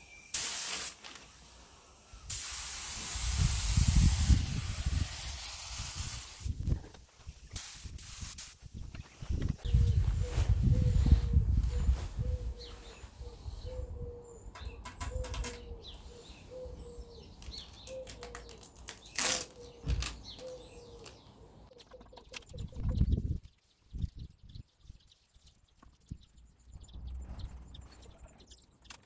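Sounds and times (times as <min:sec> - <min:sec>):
small birds chirping: 0:00.0 - 0:00.8, 0:03.3 - 0:29.0
tape and newspaper tearing: 0:00.6 - 0:01.4, 0:17.6 - 0:21.1
pigeon cooing: 0:09.6 - 0:17.3
paper rustling: 0:17.5 - 0:20.6.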